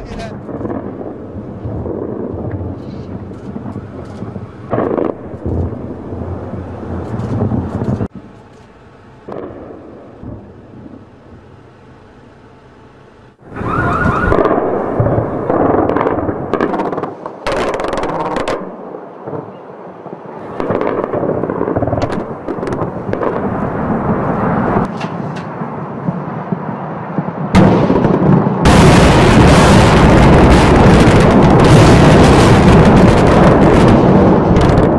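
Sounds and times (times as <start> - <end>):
bomb explosions: 0.0 - 8.4, 9.1 - 11.7, 13.4 - 24.9, 25.5 - 34.9
anti-aircraft gunfire bursts: 14.2 - 18.7, 20.6 - 23.5, 27.6 - 34.9.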